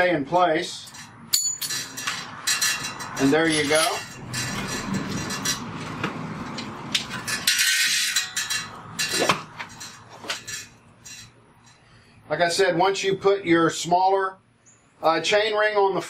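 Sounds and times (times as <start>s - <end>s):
bicycle chain clinking: 0.8s - 5.8s, 6.9s - 11.8s.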